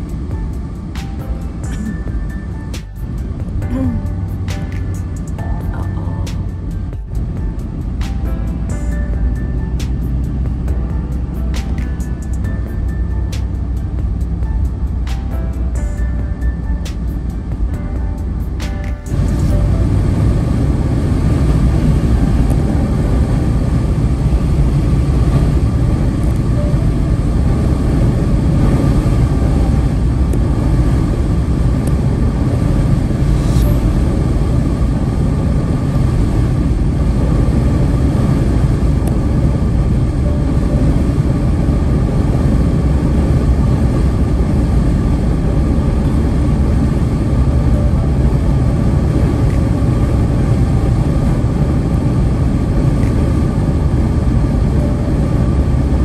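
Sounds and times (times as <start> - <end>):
car driving on wet road: 19.1 - 33.4.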